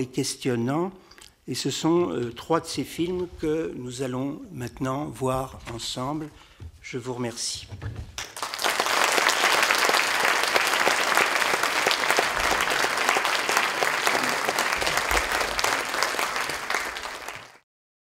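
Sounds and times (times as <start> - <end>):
audience applauding: 8.2 - 17.6.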